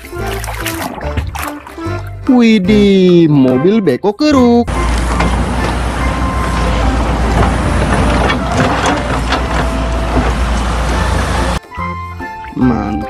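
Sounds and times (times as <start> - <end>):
bucket knocking on soil: 4.7 - 11.3
excavator diesel engine rumbling: 4.7 - 11.6.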